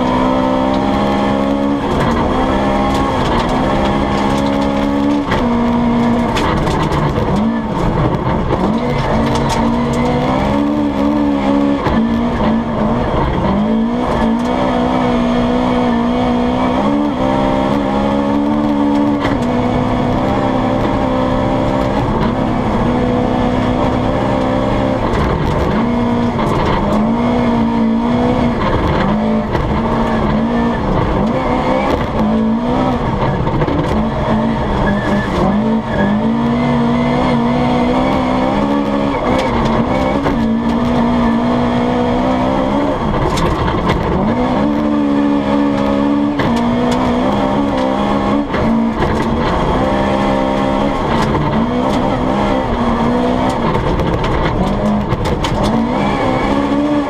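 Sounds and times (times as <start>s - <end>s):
rally car engine revving: 0.0s - 57.0s
tyre and road noise: 0.0s - 57.0s.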